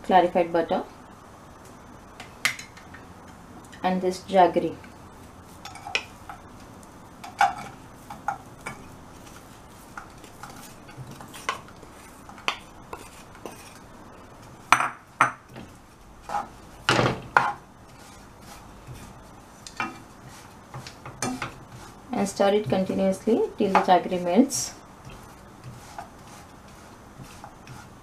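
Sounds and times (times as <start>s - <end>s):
spatula stirring in a pan: 5.0s - 28.0s
wooden spatula scraping a plate: 7.2s - 14.6s, 15.5s - 16.6s, 17.3s - 23.0s, 25.0s - 28.0s.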